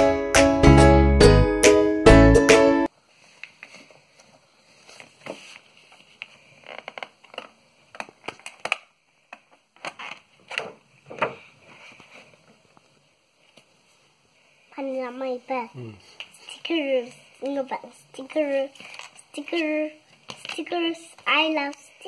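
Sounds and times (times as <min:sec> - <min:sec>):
card and plastic rustling: 0:03.3 - 0:08.9, 0:18.4 - 0:21.9.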